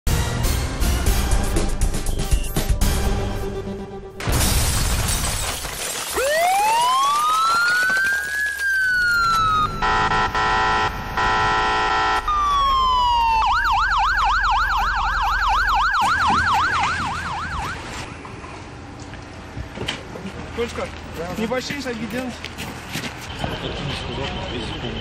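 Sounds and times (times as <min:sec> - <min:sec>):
fire engine siren wailing and yelping: 0:06.0 - 0:18.1
siren horn blasts: 0:08.6 - 0:18.1.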